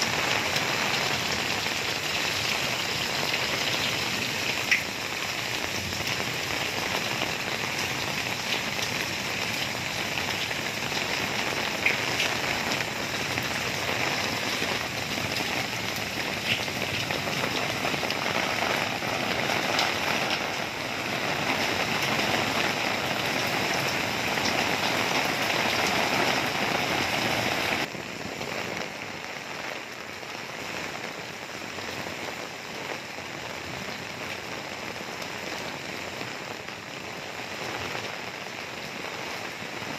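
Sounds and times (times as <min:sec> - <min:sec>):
close raindrop hits: 0:00.0 - 0:29.9
heavy rain falling: 0:00.0 - 0:39.9.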